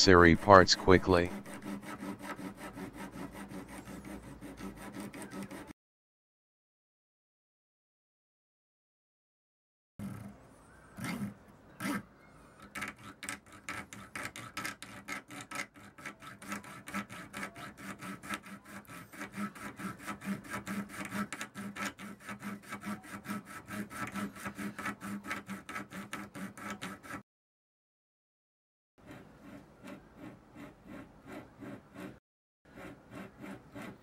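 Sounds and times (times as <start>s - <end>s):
saw blade cutting plastic: 0.2s - 5.8s, 10.0s - 27.2s, 29.0s - 34.0s.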